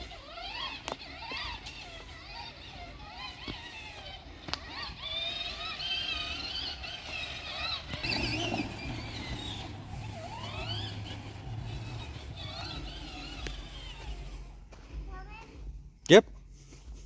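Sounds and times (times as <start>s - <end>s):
electric motor hum: 0.0s - 14.8s
high wavering squeals: 4.2s - 14.6s.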